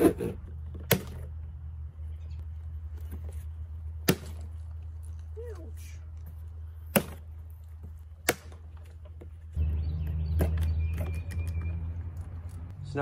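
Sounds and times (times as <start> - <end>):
plastic snapping cracks: 8.2 - 8.9.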